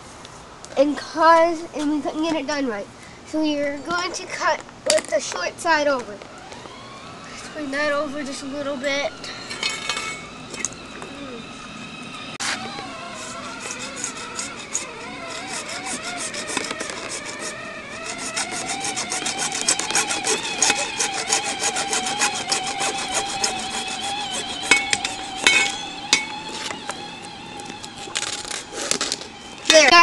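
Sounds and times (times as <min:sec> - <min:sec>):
hacksaw cutting plastic pipe: 0:12.4 - 0:30.0.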